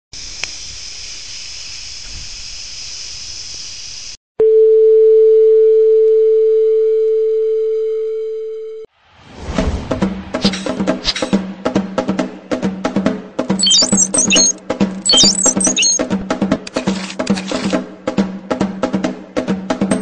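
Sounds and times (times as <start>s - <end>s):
music with clicking percussion: 13.5s - 17.3s
steady test tone: 13.6s - 16.0s.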